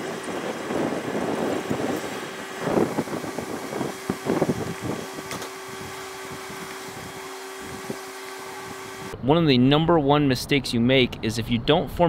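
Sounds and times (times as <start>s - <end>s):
squeegee scraping window film: 0.0s - 9.2s
steady low hum: 0.0s - 11.2s.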